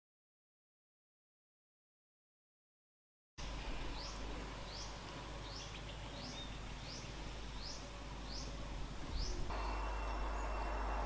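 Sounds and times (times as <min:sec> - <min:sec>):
field noise hiss: 0:03.4 - 0:11.0
bird high rising call: 0:03.9 - 0:11.0.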